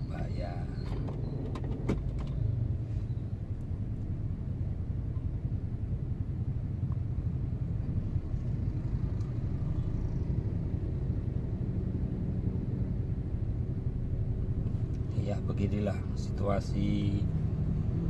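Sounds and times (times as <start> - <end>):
vehicle engine idling: 0.0 - 11.2.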